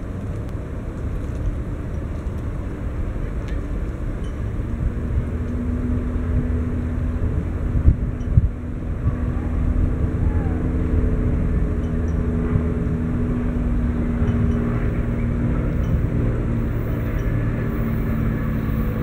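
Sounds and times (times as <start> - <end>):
low engine rumble: 0.0 - 19.0.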